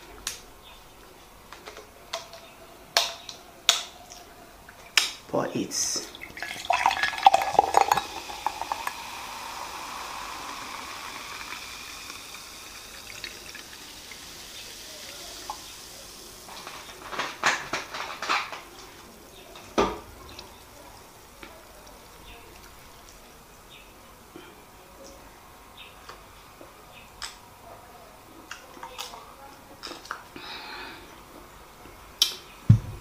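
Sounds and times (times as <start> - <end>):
soda fizzing: 4.8 - 23.8
soda pouring into a glass: 6.0 - 17.2.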